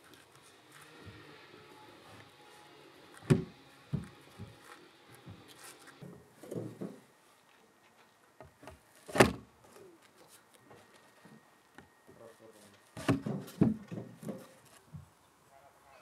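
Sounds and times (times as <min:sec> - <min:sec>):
knocks and thumps: 0:13.0 - 0:15.0.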